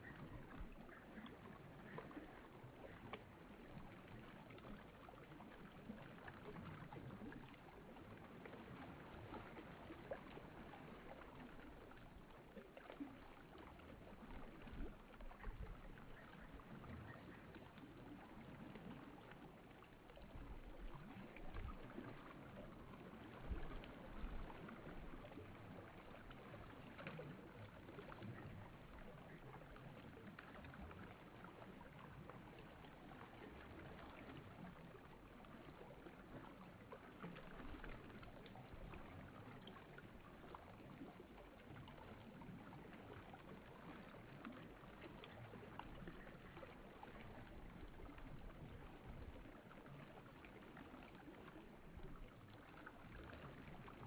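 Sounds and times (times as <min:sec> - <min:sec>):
stream running over stones: 0:00.0 - 0:54.0.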